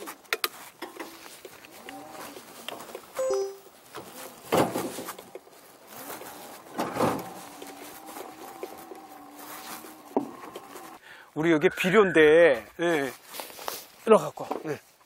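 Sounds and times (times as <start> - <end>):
tyre noise on dirt: 0.0 - 11.0.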